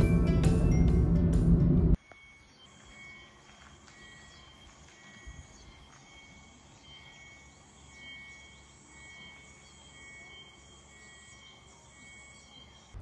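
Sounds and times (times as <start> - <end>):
faint forest ambience: 2.0 - 13.0
insects chirping: 2.0 - 13.0.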